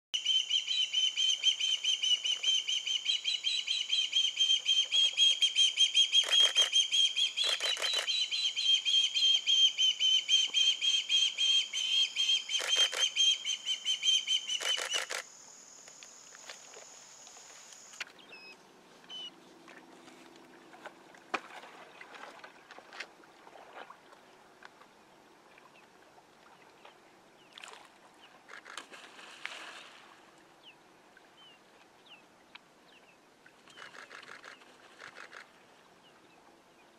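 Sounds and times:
osprey whistled chirps: 0:00.2 - 0:15.2.

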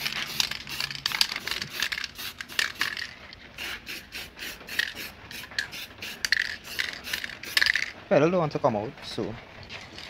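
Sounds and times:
spray can bursts: 0:00.0 - 0:07.9.

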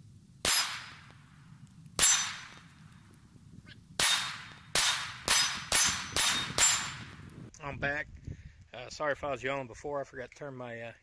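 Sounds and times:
pistol shots with echo: 0:00.4 - 0:01.1, 0:02.0 - 0:02.6, 0:04.0 - 0:07.1.

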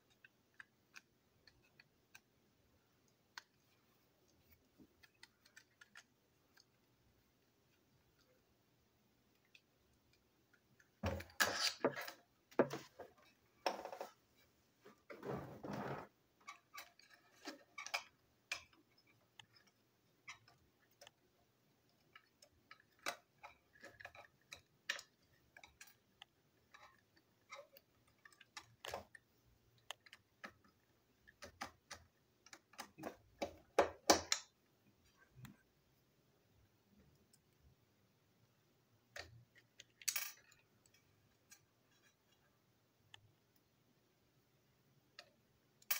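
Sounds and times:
plastic parts clicking and scraping: 0:03.0 - 0:06.9, 0:09.3 - 0:14.2, 0:15.0 - 0:34.6.

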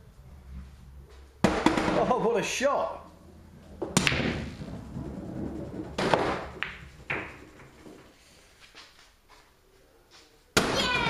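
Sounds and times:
ball rolling on felt: 0:03.3 - 0:09.0
billiard balls clacking: 0:03.7 - 0:08.2
cue striking ball click: 0:06.0 - 0:07.7.

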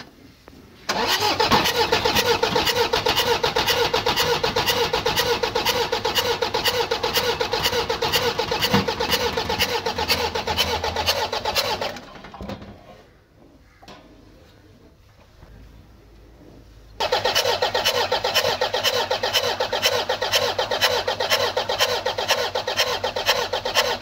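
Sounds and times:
starter motor whine: 0:00.9 - 0:12.1, 0:17.0 - 0:24.0
diesel engine cranking: 0:00.9 - 0:12.3, 0:17.0 - 0:24.0.

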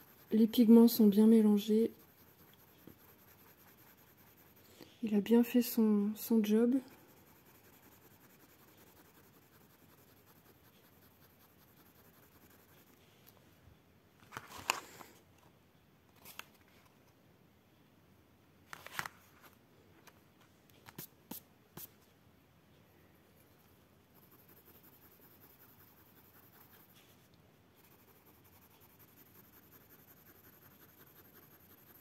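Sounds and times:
handling rustles: 0:14.2 - 0:15.2.

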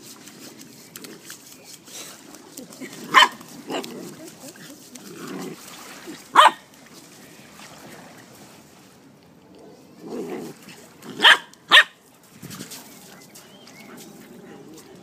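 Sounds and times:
puppy barking: 0:03.1 - 0:03.9, 0:06.3 - 0:06.6, 0:11.2 - 0:12.0.

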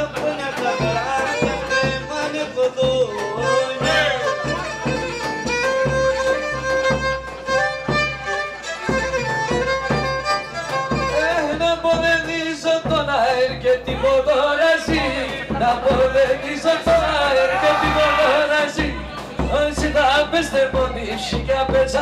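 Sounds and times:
bowed lyra folk dance melody: 0:00.0 - 0:11.8
steady beat: 0:00.0 - 0:22.0.

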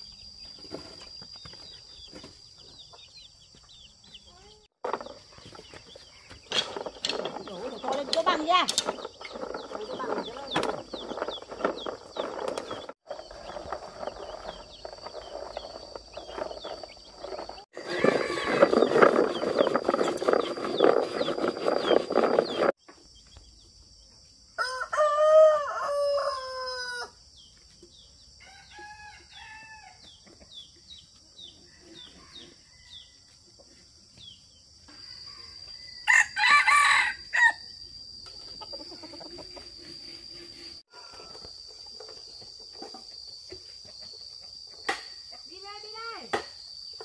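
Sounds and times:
rooster crowing: 0:17.8 - 0:19.0, 0:24.6 - 0:27.2, 0:28.4 - 0:30.0, 0:34.9 - 0:37.6.

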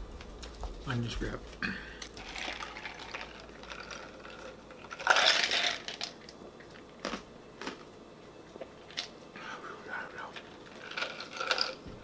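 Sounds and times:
ice clattering in plastic cup: 0:02.2 - 0:06.1.

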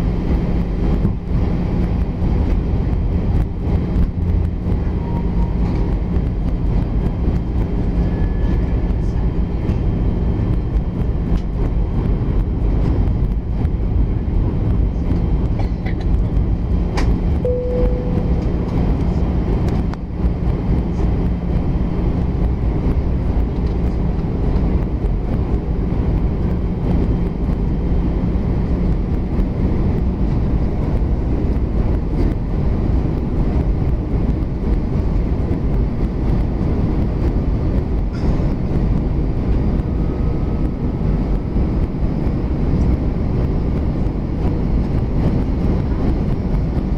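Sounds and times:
aircraft cabin engine rumble: 0:00.0 - 0:46.9
faint steady hum: 0:17.4 - 0:19.2.

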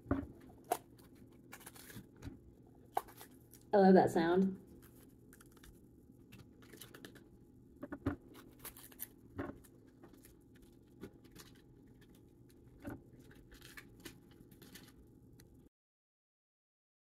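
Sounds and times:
peppers snapping and tearing: 0:08.3 - 0:10.3.

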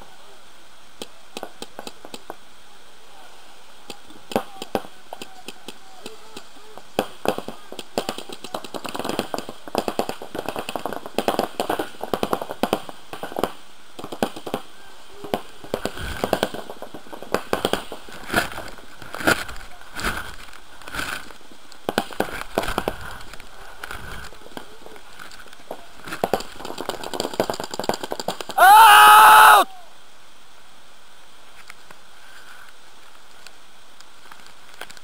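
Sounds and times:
paintballs hitting inflatable bunker: 0:04.3 - 0:14.7, 0:26.1 - 0:28.6.

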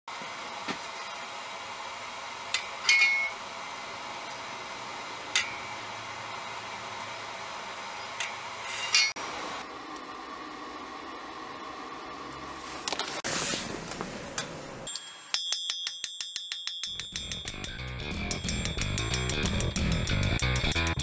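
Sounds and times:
metal clinking on anvil: 0:02.5 - 0:03.4, 0:05.3 - 0:05.8, 0:08.1 - 0:09.2, 0:14.9 - 0:21.0.

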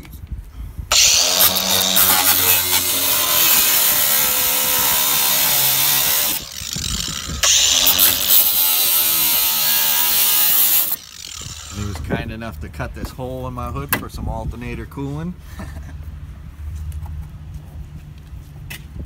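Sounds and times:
angle grinder cutting sheet metal: 0:00.9 - 0:12.0.

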